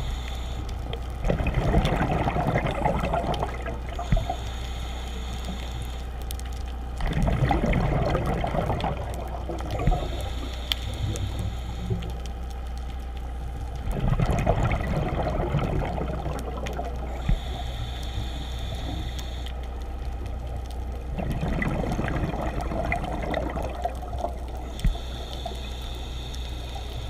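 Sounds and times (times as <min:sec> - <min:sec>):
high hiss of inhaling: 0:00.0 - 0:00.8, 0:04.0 - 0:06.1, 0:10.0 - 0:12.2, 0:17.1 - 0:19.5, 0:24.7 - 0:27.0
low hum: 0:00.0 - 0:27.0
exhaled bubbles: 0:01.2 - 0:04.4, 0:07.0 - 0:10.4, 0:13.8 - 0:17.5, 0:21.0 - 0:24.8.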